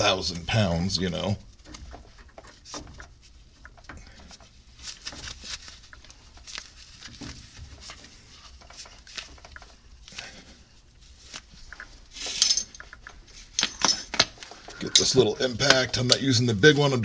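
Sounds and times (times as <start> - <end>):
faint low hum: 0.0 - 17.0
tools clicking and knocking on metal: 11.7 - 16.2.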